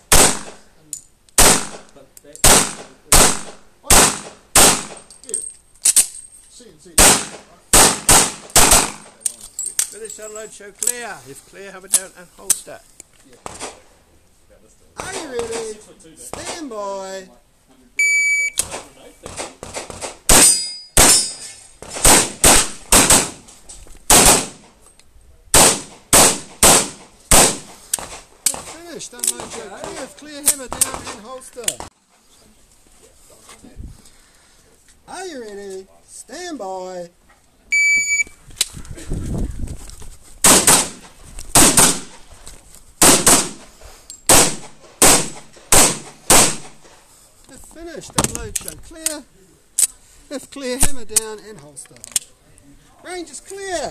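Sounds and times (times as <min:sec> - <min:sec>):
pistol shots: 0:00.1 - 0:00.6, 0:01.4 - 0:05.0, 0:07.0 - 0:09.2, 0:18.6 - 0:23.4, 0:24.1 - 0:24.7, 0:25.5 - 0:28.8, 0:40.4 - 0:42.2, 0:43.0 - 0:43.6, 0:44.3 - 0:46.8
shot timer beep: 0:18.0 - 0:18.6, 0:37.8 - 0:38.3
metallic ring of steel targets: 0:20.4 - 0:21.7.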